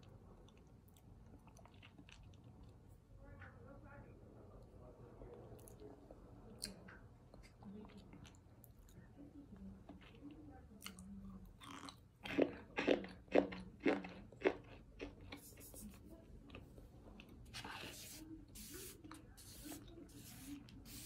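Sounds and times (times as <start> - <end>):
soft chewing: 0.0 - 3.6, 4.4 - 21.0
fingers rustling in powder: 17.6 - 21.0.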